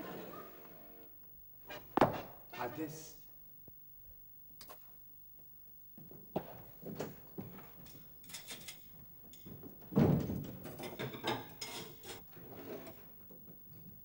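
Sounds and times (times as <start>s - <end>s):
dishes and utensils clattering: 10.7s - 12.2s.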